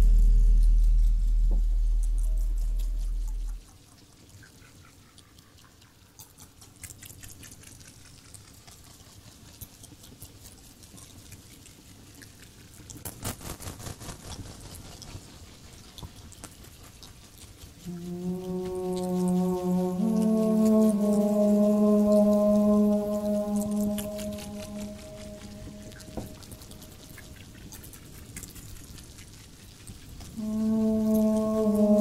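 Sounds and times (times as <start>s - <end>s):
deep loud drone: 0.0s - 3.6s, 17.9s - 27.1s, 30.4s - 32.0s
faint clicks and crackles: 0.6s - 32.0s.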